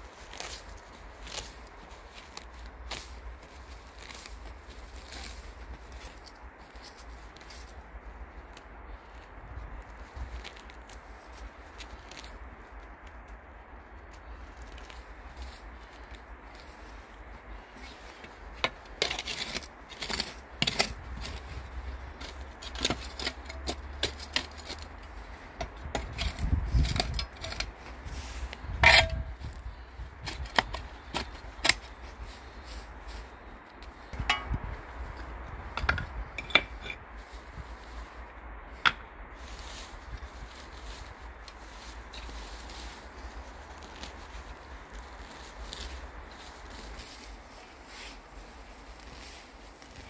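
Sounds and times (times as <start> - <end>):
roots and dirt tearing: 0.0 - 50.0
metal dustpan scraping soil: 18.6 - 21.5, 22.2 - 25.0, 25.8 - 29.6.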